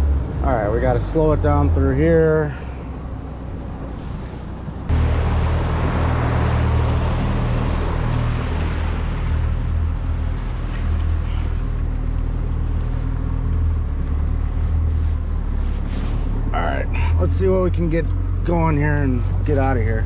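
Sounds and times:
water rushing: 4.9 - 13.4.

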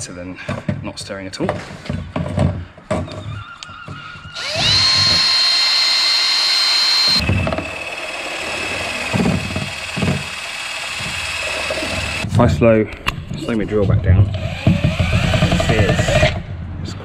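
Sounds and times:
cordless drill whining: 4.3 - 12.2, 14.3 - 16.4.

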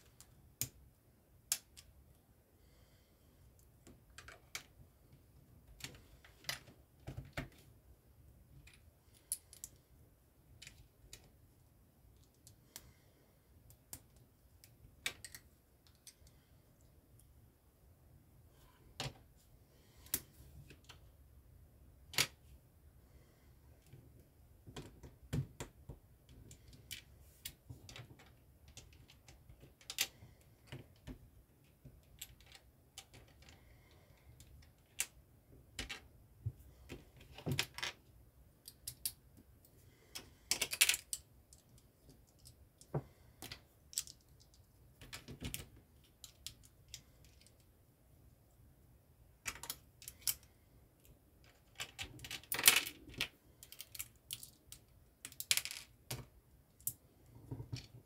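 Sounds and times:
plastic bricks clicking together: 40.5 - 47.5, 51.5 - 57.0.

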